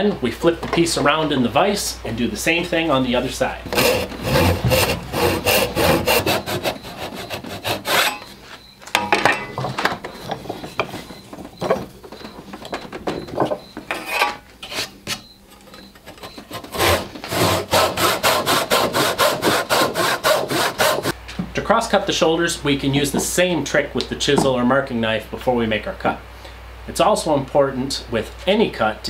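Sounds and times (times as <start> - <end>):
handsaw cutting wood: 3.7 - 8.3, 16.4 - 21.2.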